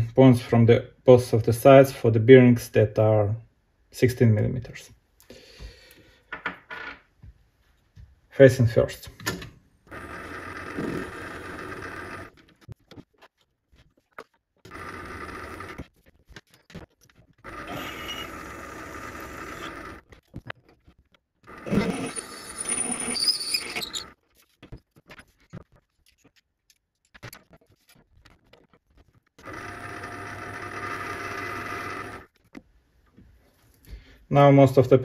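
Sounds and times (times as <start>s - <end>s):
drill squealing in metal: 17.5s - 18.6s, 21.6s - 24.2s
lathe motor whine and hum: 29.5s - 32.3s.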